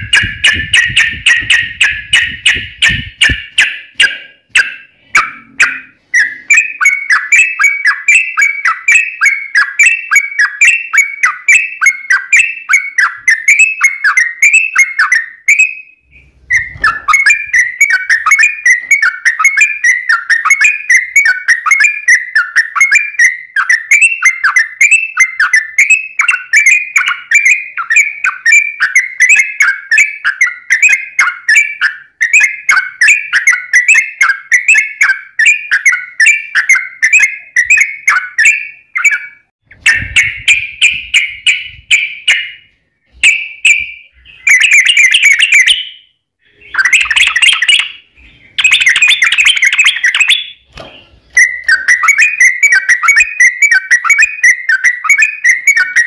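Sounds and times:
bulbul singing bubbly chirps: 0.0s - 15.7s, 46.6s - 50.7s.

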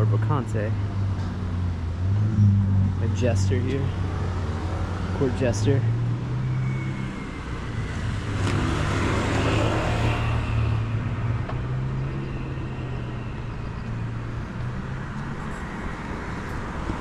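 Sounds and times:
car passing: 1.0s - 17.0s.

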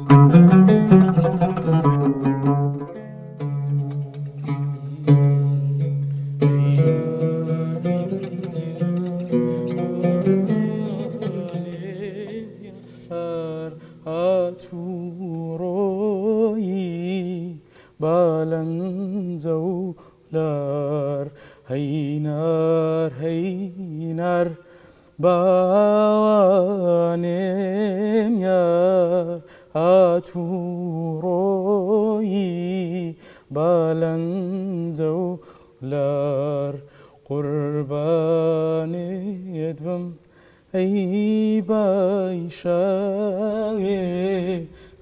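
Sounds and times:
man singing unaccompanied: 0.0s - 45.0s.

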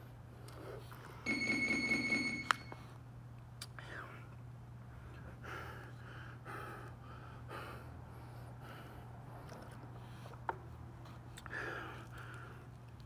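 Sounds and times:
man breathing heavily: 4.8s - 10.4s, 11.3s - 12.8s.

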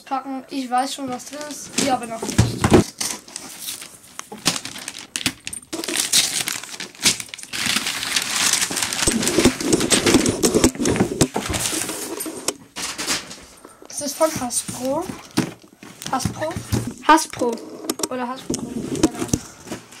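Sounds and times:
wrapping paper crinkling: 1.2s - 17.1s.

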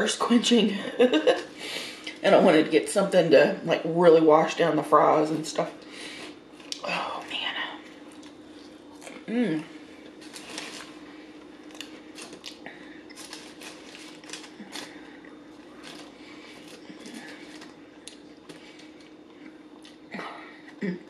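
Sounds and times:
faint steady hum: 0.0s - 21.0s
foil wrapper crackling: 10.1s - 19.0s.

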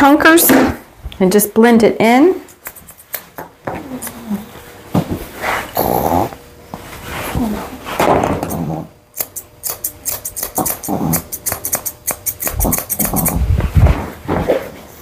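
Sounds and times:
shears snipping hair: 2.5s - 4.4s, 8.4s - 13.6s
dog vocalizing: 5.7s - 6.4s, 10.2s - 13.4s.

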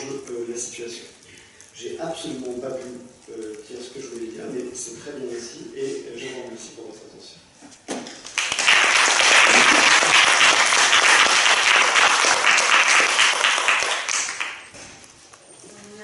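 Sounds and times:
audience applauding: 8.2s - 14.7s.

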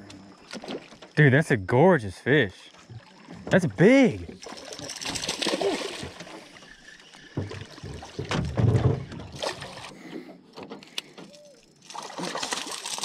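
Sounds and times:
water splashing: 2.7s - 10.0s, 11.8s - 13.0s.

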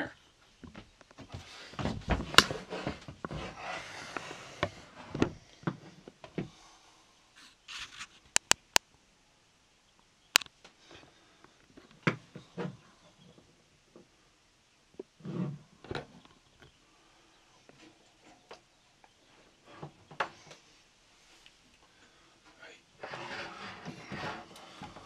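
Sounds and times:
sharp clicks and knocks: 8.3s - 8.9s.

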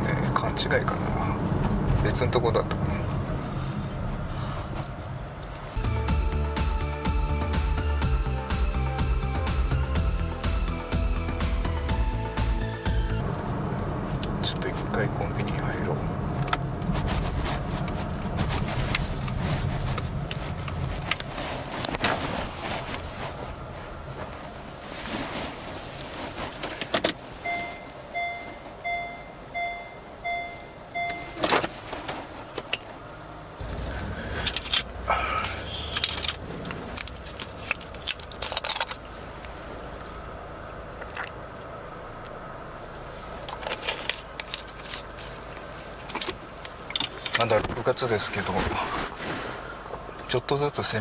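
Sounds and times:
car engine and road rumble: 0.0s - 51.0s
reverse warning beeps: 27.4s - 31.5s.

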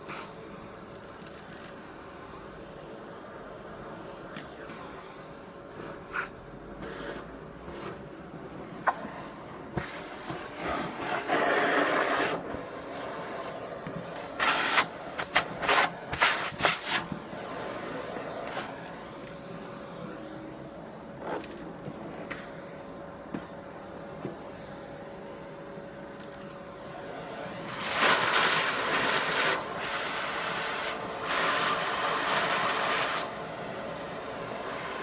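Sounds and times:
vacuum cleaner motor whine: 2.3s - 21.4s, 22.4s - 35.0s
rustling and sucking noises: 8.8s - 19.1s.

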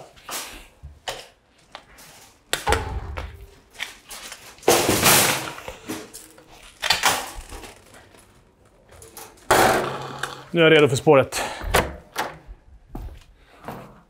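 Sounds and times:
loud clattering bangs: 2.7s - 3.8s.

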